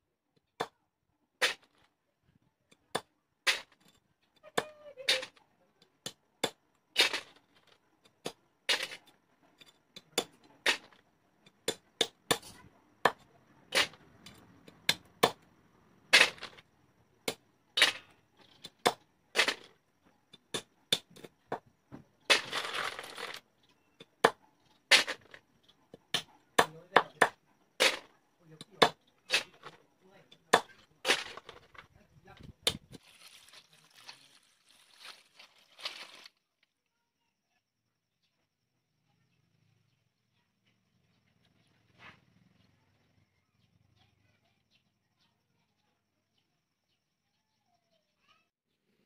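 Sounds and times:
rustle: 0:33.0 - 0:36.4.

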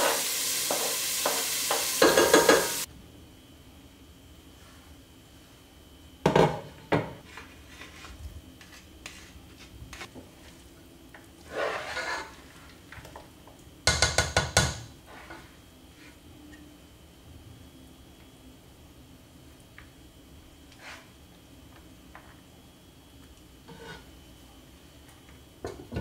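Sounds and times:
spoon knocking against pot: 0:13.9 - 0:14.8.

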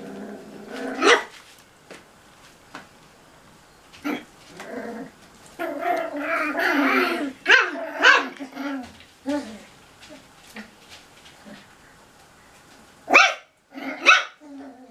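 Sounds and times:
puppies growling: 0:00.0 - 0:01.3, 0:04.0 - 0:10.8, 0:13.7 - 0:14.9
puppies barking: 0:01.0 - 0:01.3, 0:06.1 - 0:08.8, 0:13.1 - 0:14.5.

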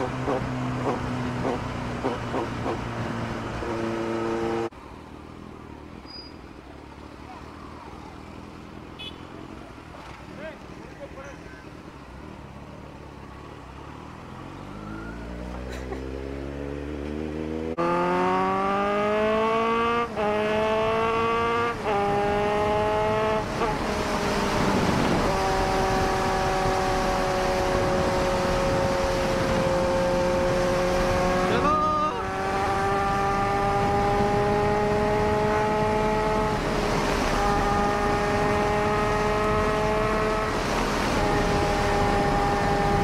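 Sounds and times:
motorcycle engine accelerating: 0:00.0 - 0:04.7, 0:14.3 - 0:43.0.

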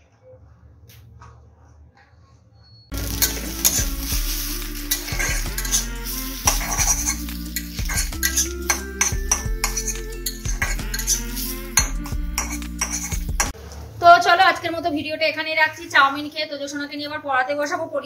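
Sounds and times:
oil sizzling: 0:02.9 - 0:13.6
spatula scraping a pan: 0:02.9 - 0:14.0.

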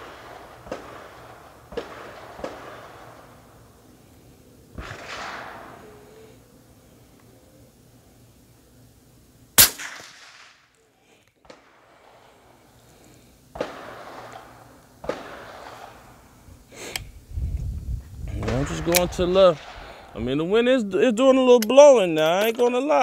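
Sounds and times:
rifle shot: 0:00.0 - 0:03.4, 0:04.7 - 0:06.2, 0:09.6 - 0:10.7, 0:13.5 - 0:16.2, 0:18.4 - 0:20.2.

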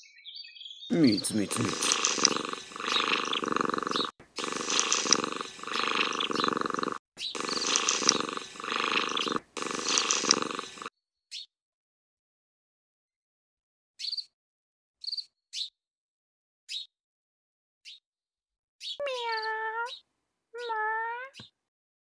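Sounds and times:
cat purring: 0:00.9 - 0:10.9.

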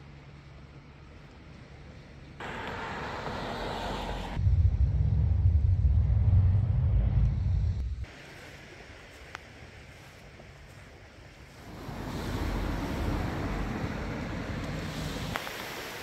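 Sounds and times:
roadside hiss: 0:00.0 - 0:04.7, 0:07.3 - 0:16.0
low rumble: 0:02.4 - 0:08.1, 0:11.5 - 0:15.4.

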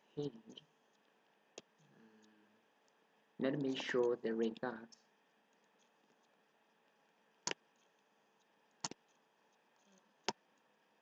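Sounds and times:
computer mouse clicks: 0:03.6 - 0:06.4, 0:07.4 - 0:10.7.

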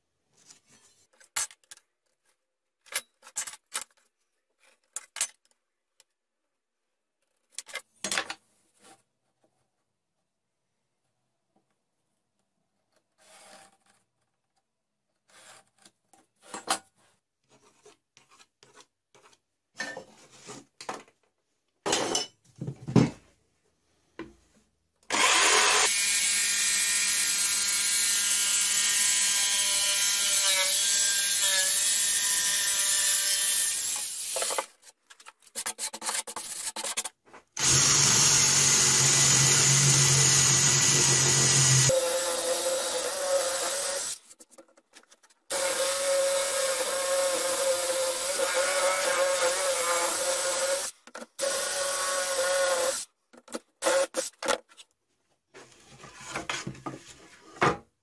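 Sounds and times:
electric jigsaw cutting plywood: 0:25.1 - 0:34.2, 0:37.6 - 0:44.2, 0:45.5 - 0:53.0
cordless drill boring plywood: 0:25.1 - 0:34.6, 0:37.6 - 0:44.2, 0:45.5 - 0:53.0.

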